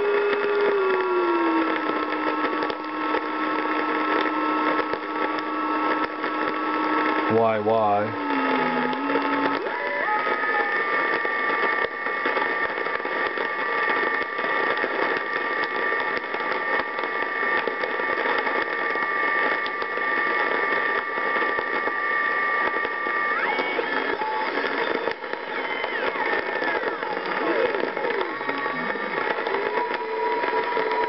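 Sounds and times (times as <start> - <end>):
radio static hiss: 0.0 - 31.0.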